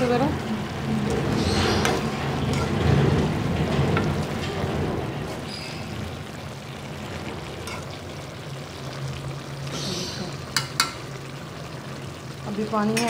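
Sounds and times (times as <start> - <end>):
spoon stirring in metal pot: 10.5 - 11.0.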